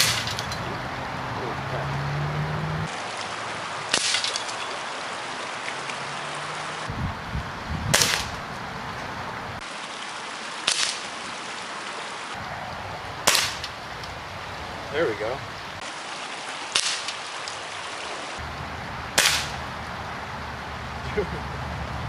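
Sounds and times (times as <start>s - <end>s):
sharp cracks of shots: 0.0s - 0.4s, 3.9s - 4.4s, 7.9s - 8.4s, 13.2s - 13.7s, 19.2s - 19.6s
river rushing: 0.0s - 22.0s.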